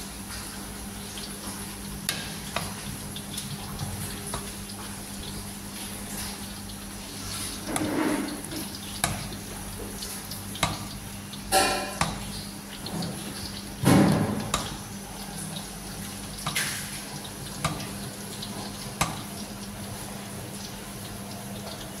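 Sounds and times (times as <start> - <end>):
liquid sloshing in pot: 0.3 - 22.0
ladle clinking against pot: 11.5 - 12.3
thump: 13.8 - 14.4.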